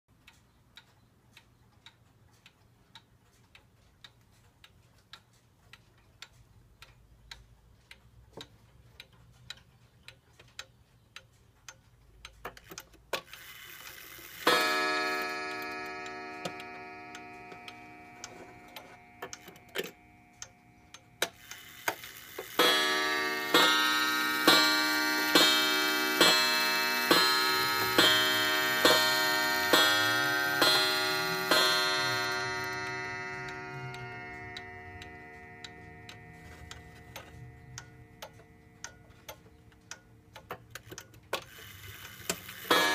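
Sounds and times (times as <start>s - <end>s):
clock ticking softly: 0.1s - 42.9s
clock gong strikes: 14.4s - 20.8s, 22.5s - 38.7s, 42.7s - 42.9s.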